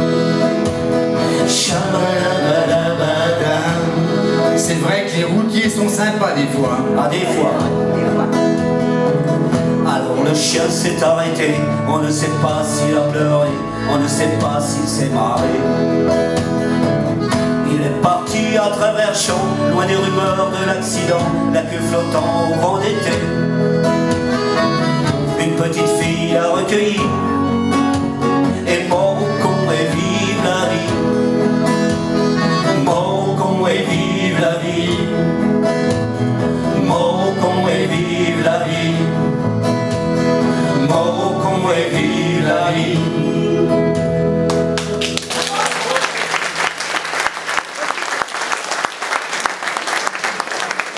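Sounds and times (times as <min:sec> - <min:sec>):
accordion: 0:00.0 - 0:44.9
double bass: 0:00.0 - 0:45.2
keyboard: 0:00.0 - 0:46.7.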